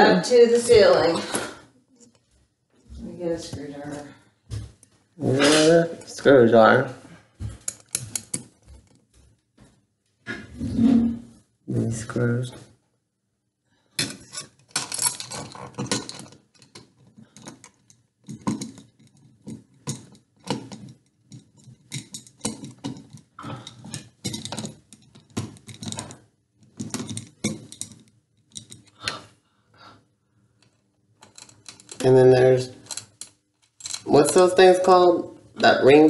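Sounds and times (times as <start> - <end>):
metal hardware clinking and rattling: 7.5 - 8.9, 14.0 - 28.9, 30.6 - 35.0.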